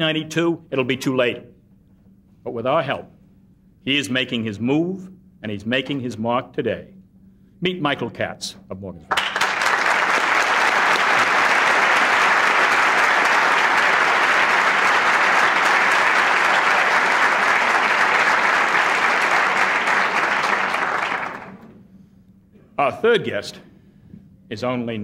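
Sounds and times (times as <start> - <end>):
audience applause: 9.1 - 21.7.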